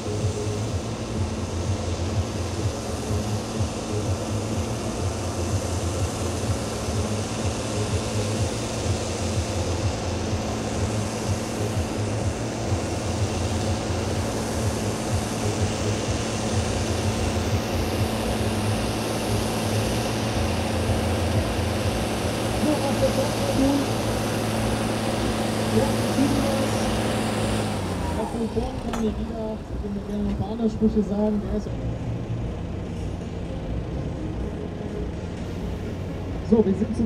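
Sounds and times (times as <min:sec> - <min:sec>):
tractor diesel engine running: 0:00.0 - 0:37.0.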